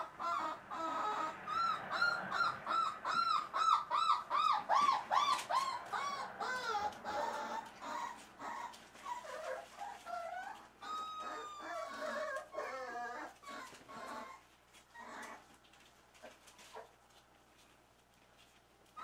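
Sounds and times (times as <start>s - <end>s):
puppies whining and squeaking: 0.0s - 17.0s, 18.8s - 19.0s.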